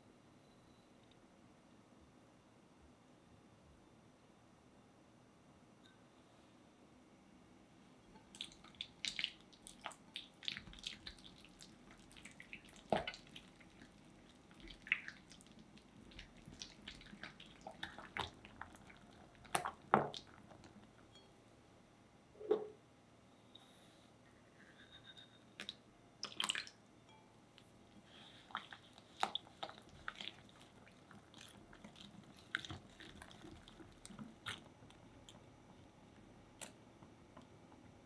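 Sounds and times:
whisk squishing cream cheese: 8.2 - 20.8, 28.4 - 35.5.

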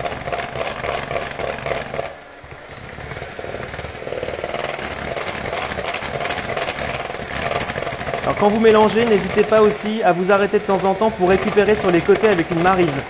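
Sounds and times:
electric mixer motor whirring: 0.0 - 13.0
beaters clattering against bowl: 4.3 - 10.0.

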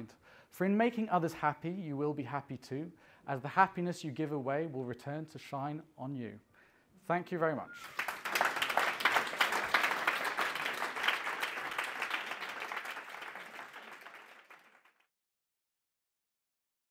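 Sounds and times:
audience applauding: 7.8 - 15.1.

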